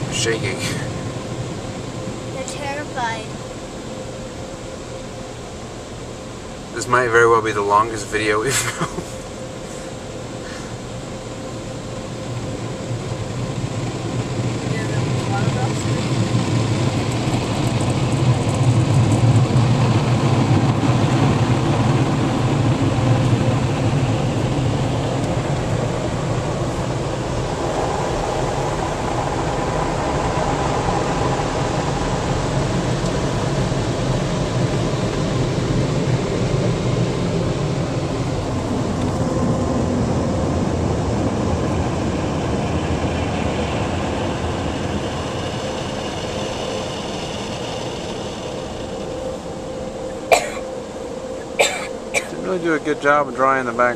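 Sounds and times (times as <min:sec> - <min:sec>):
car wash air blowers: 0:00.0 - 0:03.2, 0:03.9 - 0:53.9.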